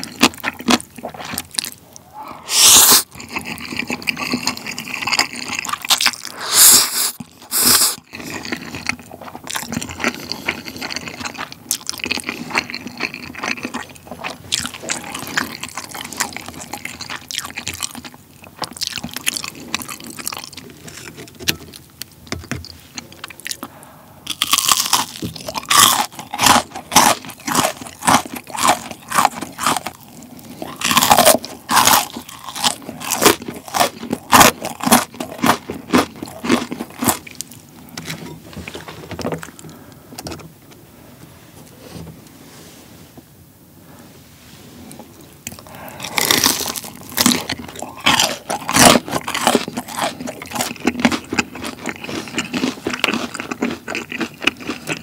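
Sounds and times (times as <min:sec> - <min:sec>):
chewing: 0:00.0 - 0:40.0, 0:44.9 - 0:55.0
slurping noodles: 0:02.0 - 0:11.3
crisp crunching bites: 0:24.3 - 0:37.5, 0:45.5 - 0:55.0.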